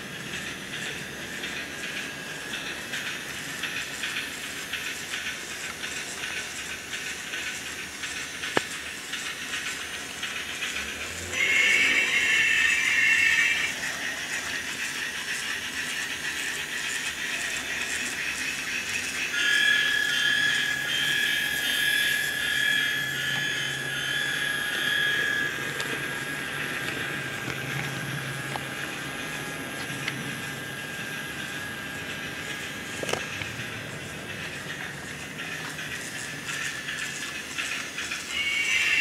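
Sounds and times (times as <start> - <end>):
high steady whine: 0.0 - 39.0
train rolling: 0.0 - 39.0.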